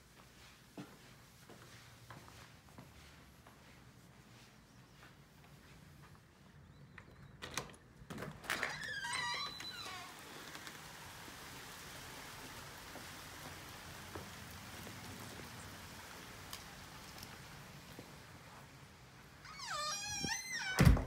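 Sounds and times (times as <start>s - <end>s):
hiss of outdoor air: 8.9s - 20.7s.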